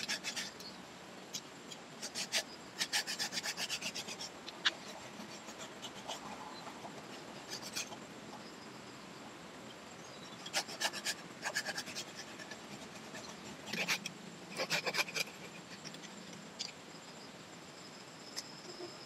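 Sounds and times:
hand saw cutting branch: 2.0 - 6.3, 10.5 - 15.8.

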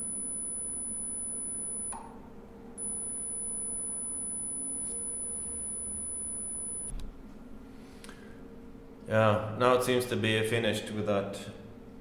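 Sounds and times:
high-pitched electric motor whine: 0.0 - 2.0, 2.8 - 6.9
low steady hum: 0.0 - 12.0.

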